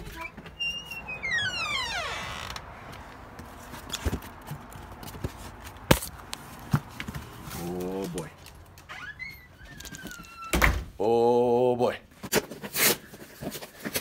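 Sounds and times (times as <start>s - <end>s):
door hinge creaking: 0.0s - 2.7s.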